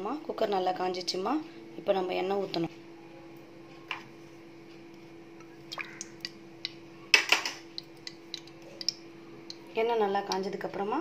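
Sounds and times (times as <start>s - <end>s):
steady low hum: 0.0s - 11.0s
oil ticking and dripping on hot metal: 5.4s - 9.7s.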